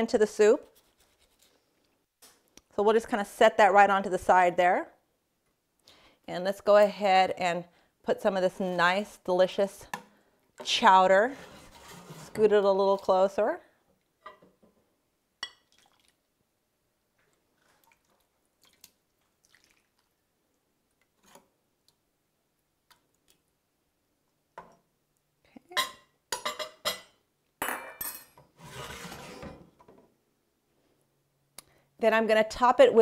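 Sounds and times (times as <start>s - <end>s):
pot scraping across stove grate: 10.9s - 13.0s, 28.5s - 29.8s.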